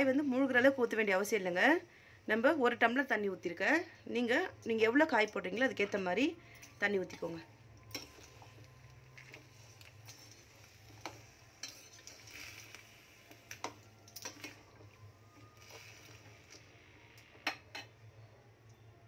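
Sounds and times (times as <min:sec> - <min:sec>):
metal spoon scraping pan: 0:07.9 - 0:08.4, 0:09.2 - 0:12.9.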